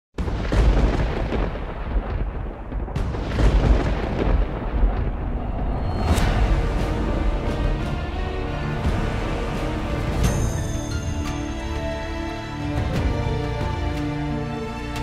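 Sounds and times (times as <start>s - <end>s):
sharp thunder-like cracks: 0.2s - 9.4s
deep rumbling booms: 0.2s - 10.5s
music: 2.7s - 15.0s.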